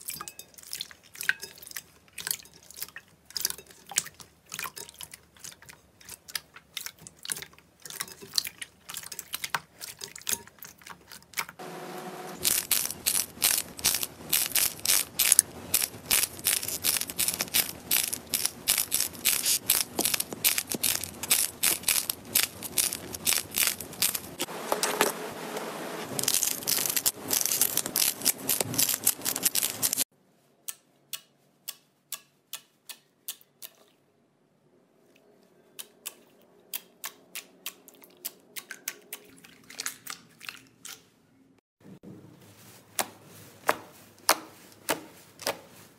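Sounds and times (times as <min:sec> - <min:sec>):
slime crackling and popping: 0:12.4 - 0:24.4, 0:26.1 - 0:30.0
soft wet clicks: 0:30.7 - 0:34.0, 0:35.1 - 0:41.1.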